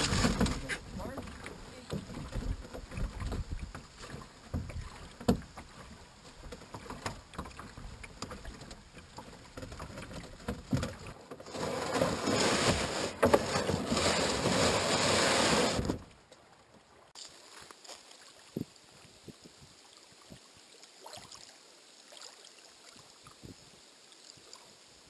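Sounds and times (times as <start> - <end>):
gear knocking in a boat: 0.0 - 12.3.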